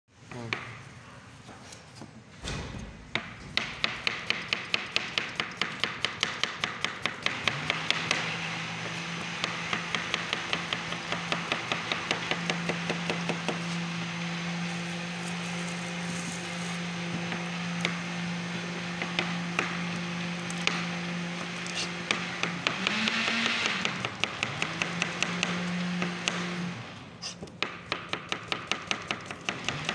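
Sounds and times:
knife chopping on cutting board: 0:02.8 - 0:13.8, 0:27.2 - 0:29.9.

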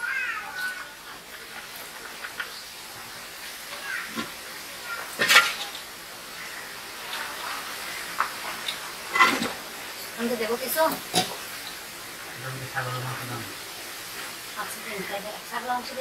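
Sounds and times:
metal spoon scraping a pan: 0:05.1 - 0:05.8, 0:07.2 - 0:09.6, 0:11.0 - 0:11.4.

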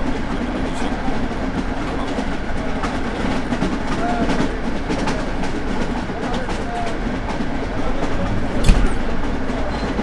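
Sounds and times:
train rumble: 0:00.0 - 0:10.0
clicks and knocks: 0:08.2 - 0:09.2.

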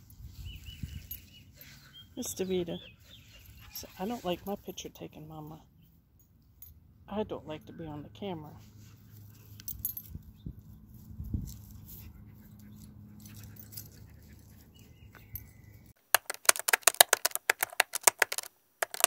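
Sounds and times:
rapid keyboard typing clicks: 0:16.1 - 0:19.0.

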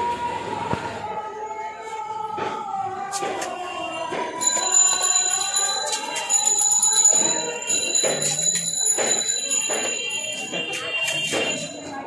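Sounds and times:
busy street noise: 0:00.0 - 0:12.0
high bell-like ringing: 0:04.4 - 0:12.0.

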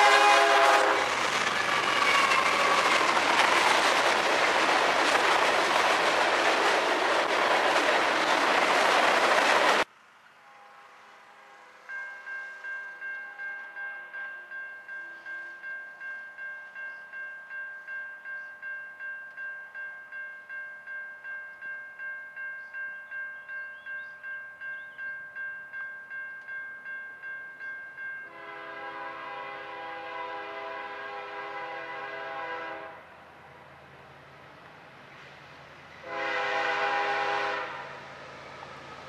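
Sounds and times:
locomotive air horn blast: 0:00.0 - 0:01.1, 0:10.4 - 0:11.8, 0:28.3 - 0:33.1, 0:36.0 - 0:38.0
train rumble: 0:00.0 - 0:17.2, 0:28.0 - 0:39.0.

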